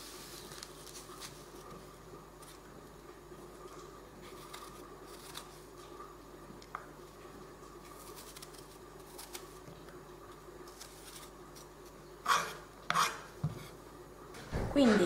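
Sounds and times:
knife scraping apple: 0:04.2 - 0:05.7, 0:08.0 - 0:09.6, 0:10.7 - 0:13.8.

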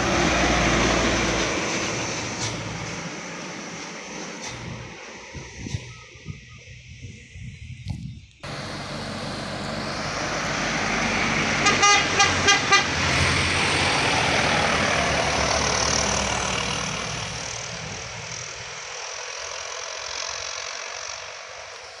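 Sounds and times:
truck diesel engine pulling uphill: 0:00.0 - 0:06.0, 0:08.4 - 0:22.0
horn short toots: 0:11.6 - 0:13.0.

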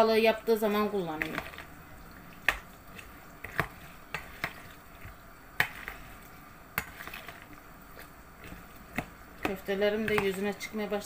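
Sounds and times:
spoon stirring pasta salad: 0:00.1 - 0:11.0.

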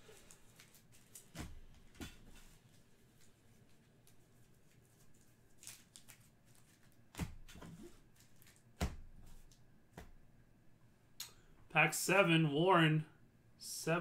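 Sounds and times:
cards and foil packs rustling: 0:00.0 - 0:08.7.

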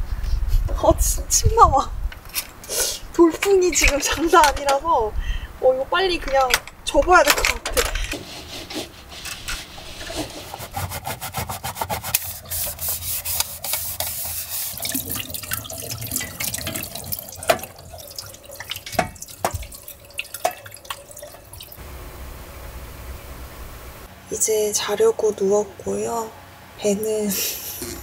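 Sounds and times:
brush scrubbing dishes: 0:08.1 - 0:21.8
tap water running into sink: 0:13.4 - 0:21.8.

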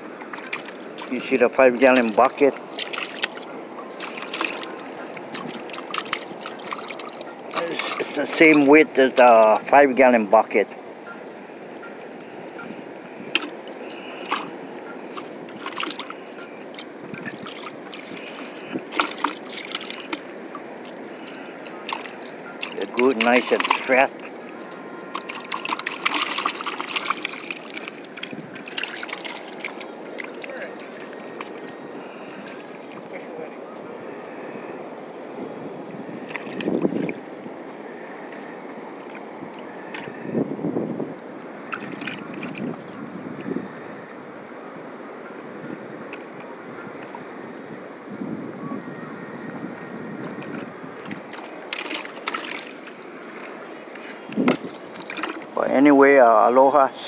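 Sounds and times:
wind buffeting microphone: 0:00.0 - 0:09.7, 0:11.8 - 0:19.1, 0:19.8 - 0:56.6
wind and sea noise: 0:00.0 - 0:57.0
water splashing in a bucket: 0:00.3 - 0:08.7, 0:13.3 - 0:24.3, 0:25.1 - 0:31.6, 0:36.1 - 0:37.2, 0:41.7 - 0:42.9, 0:50.2 - 0:56.2.

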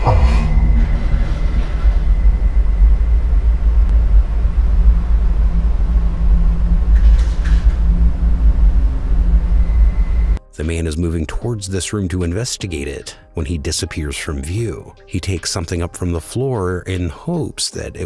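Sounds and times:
deep rumbling drone: 0:00.0 - 0:10.4
faint hum: 0:00.0 - 0:10.4.

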